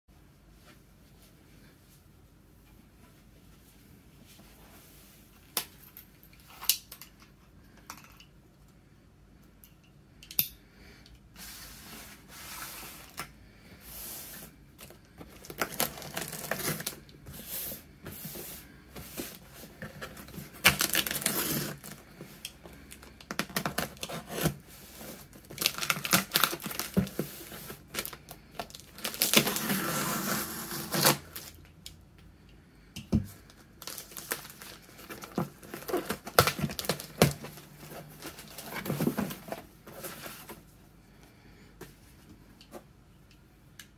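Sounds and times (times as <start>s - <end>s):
packing tape ripping: 15.4s - 17.0s, 20.5s - 22.0s, 25.4s - 31.6s, 33.8s - 37.6s
cardboard scraping and rustling: 33.9s - 40.7s.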